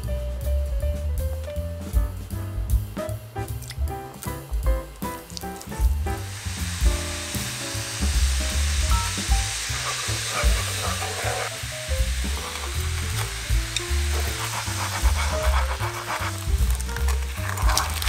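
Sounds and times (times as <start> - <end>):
music with strong bass: 0.0 - 18.0
sauce sizzling in a frying pan: 4.3 - 18.0.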